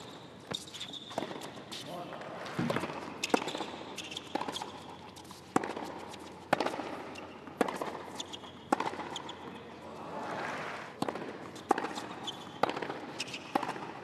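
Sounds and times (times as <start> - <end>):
racquet hitting tennis ball: 2.5 - 9.6, 10.2 - 14.0
crowd background noise: 5.8 - 12.2.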